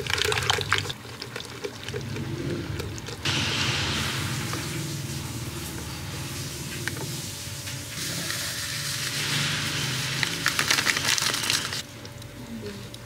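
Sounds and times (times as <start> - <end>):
coffee powder pouring hiss: 3.2 - 11.8.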